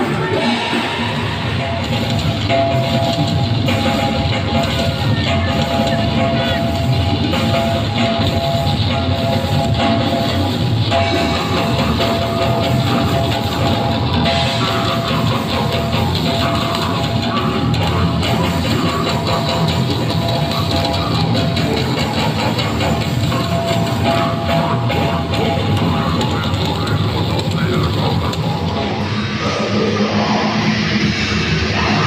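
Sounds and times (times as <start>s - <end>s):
drum kit: 0.0s - 29.6s
bass guitar: 0.0s - 32.0s
distorted electric guitar: 0.0s - 32.0s
vocalist on microphone: 0.0s - 32.0s.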